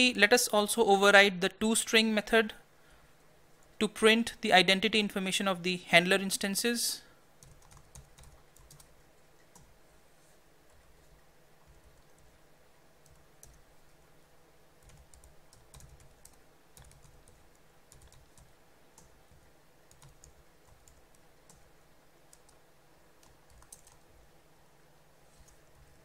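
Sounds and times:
typing on computer keyboard: 7.4 - 9.7, 13.0 - 13.6, 14.8 - 21.7, 22.3 - 22.6, 23.2 - 24.0.

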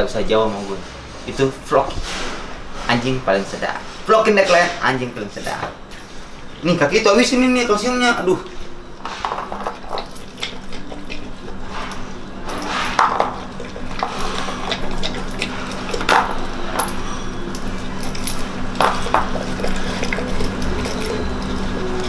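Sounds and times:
steady low hum: 0.0 - 22.0
metal collar clinking on bowl: 9.3 - 22.0
dog lapping milk: 9.4 - 17.0, 17.6 - 22.0.

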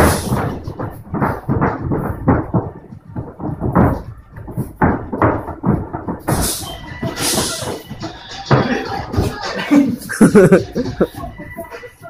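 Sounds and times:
boxing gloves hitting: 0.0 - 9.4
bare feet stamping on canvas: 0.0 - 11.2.

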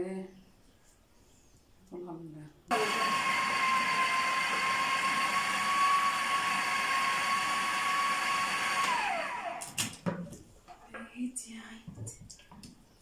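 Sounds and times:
food processor motor whining: 2.7 - 9.8.

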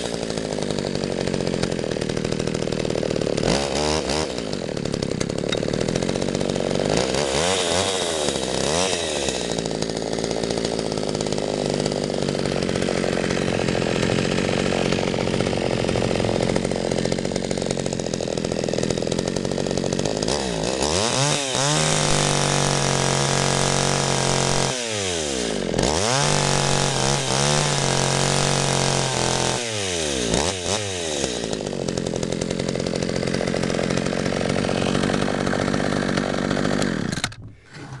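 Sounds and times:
chainsaw idling and revving: 0.0 - 38.0.

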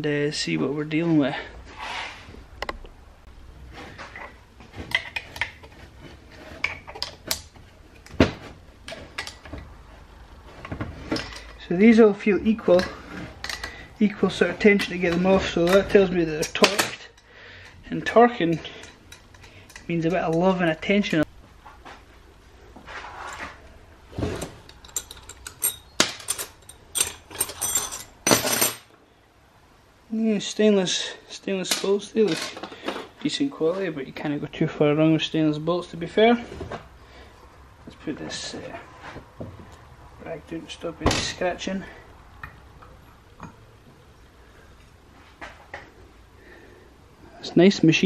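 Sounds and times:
spanner clinking on metal bolts: 24.4 - 28.9.

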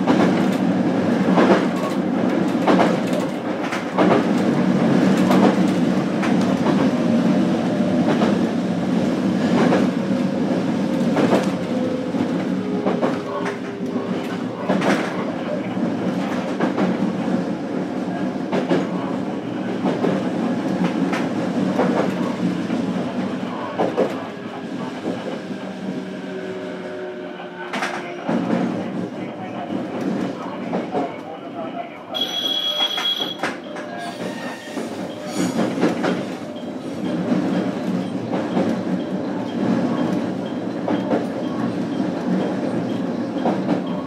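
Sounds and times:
train rumble: 0.0 - 44.0.

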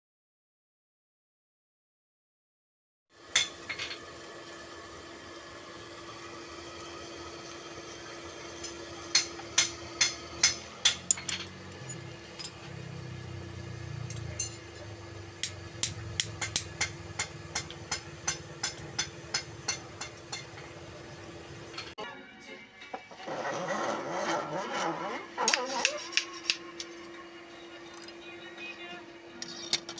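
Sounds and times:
hammer striking steel anvil: 9.1 - 12.0, 15.4 - 20.6.

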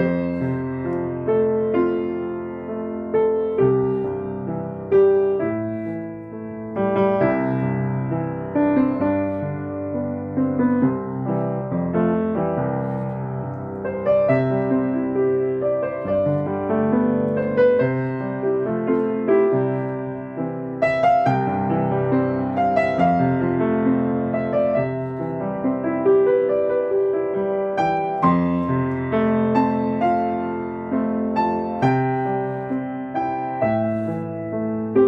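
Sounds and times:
slow gentle piano music: 0.0 - 35.0.

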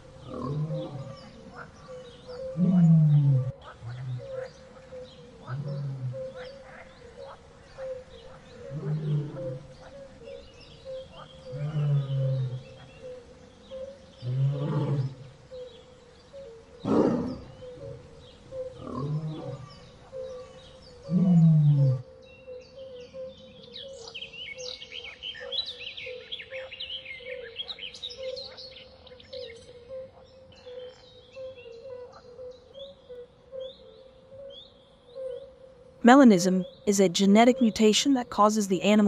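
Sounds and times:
birds chirping: 0.0 - 39.0
big cat roaring: 0.2 - 1.3, 2.5 - 4.4, 5.4 - 6.4, 8.6 - 9.7, 11.5 - 12.8, 14.2 - 15.3, 16.8 - 18.0, 18.7 - 19.8, 21.1 - 22.0.

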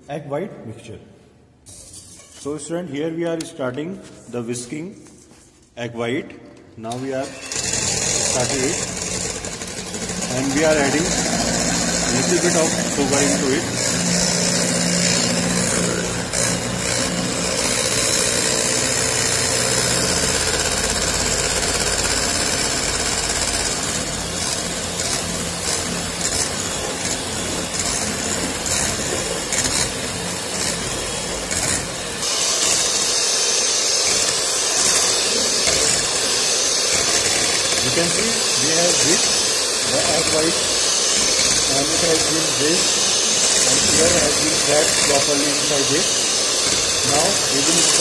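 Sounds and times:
electric hand mixer whisking: 7.2 - 48.0.

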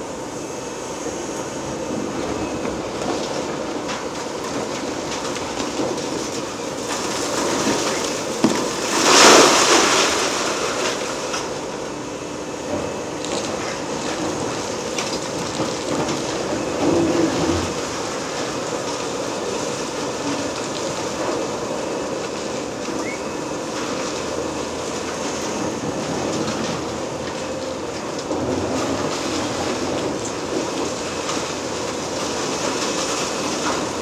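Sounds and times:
excavator diesel engine: 0.0 - 34.0
demolition rattling rumble: 1.1 - 34.0.

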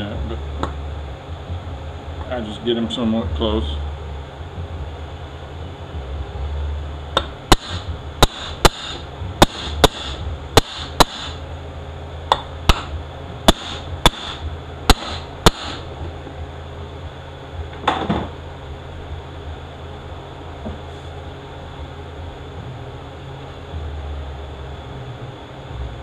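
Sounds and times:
hammer striking metal: 7.2 - 11.4, 13.5 - 15.8.

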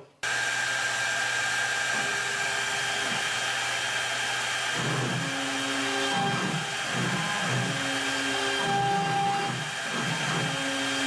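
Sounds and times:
router spindle whine: 0.2 - 11.0
axis motors wavering hum: 4.7 - 11.0.

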